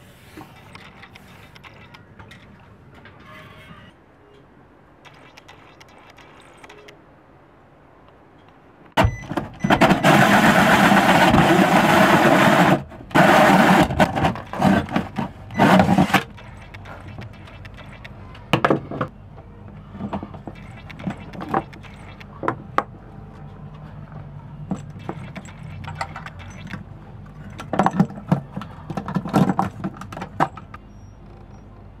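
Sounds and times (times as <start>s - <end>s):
handling clicks and knocks: 13.9s - 31.5s.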